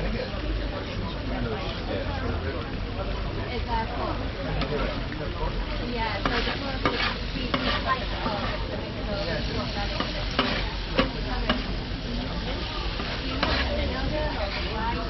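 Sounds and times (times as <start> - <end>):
meat sizzling on a griddle: 3.6 - 15.0
metal utensil scraping: 6.2 - 8.7, 12.9 - 14.8.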